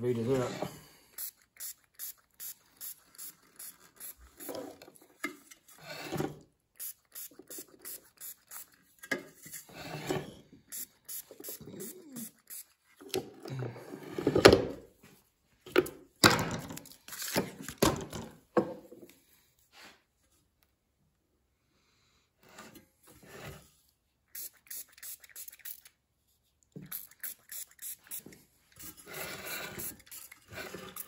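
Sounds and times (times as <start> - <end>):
spray bottle hisses: 1.2 - 4.6, 6.8 - 9.7, 10.7 - 12.8, 24.3 - 25.9, 26.8 - 31.0.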